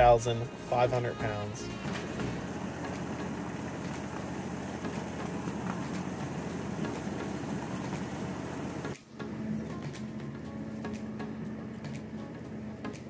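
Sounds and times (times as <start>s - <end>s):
model locomotive engine rumble: 0.0s - 9.8s
wheels rolling on rails: 1.7s - 13.0s.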